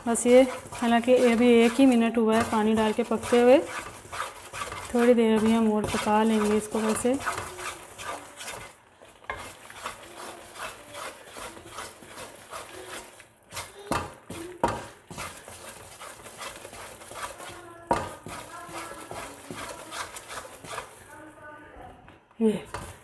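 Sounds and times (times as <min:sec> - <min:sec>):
spatula knocking against pan: 0:00.0 - 0:21.0
spatula scraping a pan: 0:00.0 - 0:21.4, 0:22.6 - 0:23.0.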